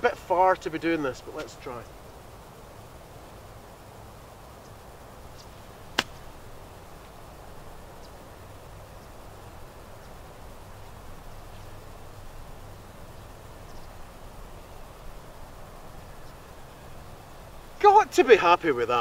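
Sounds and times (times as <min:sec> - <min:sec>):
faint outdoor background: 0:00.0 - 0:19.0
golf club striking ball: 0:05.9 - 0:06.5.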